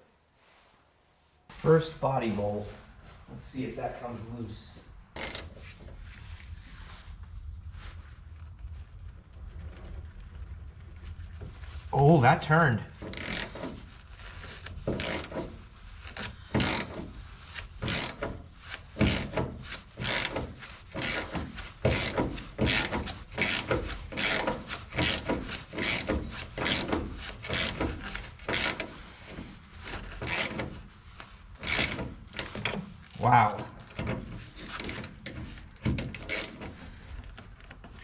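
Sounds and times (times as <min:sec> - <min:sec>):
ratchet rasping: 0:05.2 - 0:05.6, 0:13.0 - 0:37.2.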